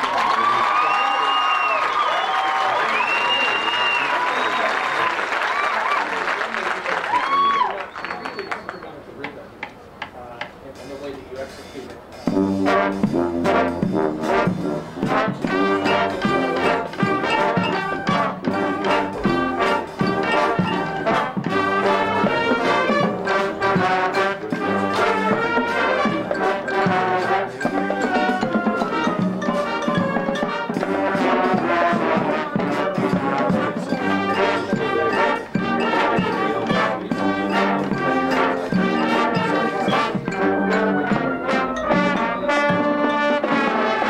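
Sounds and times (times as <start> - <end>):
percussion strikes: 9.2 - 44.0
brass playing melody: 12.2 - 44.0.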